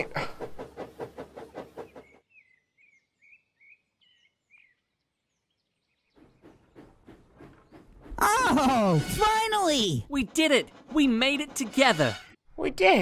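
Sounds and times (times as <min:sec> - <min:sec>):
steam locomotive chuffing: 0:00.0 - 0:02.2, 0:06.2 - 0:12.4.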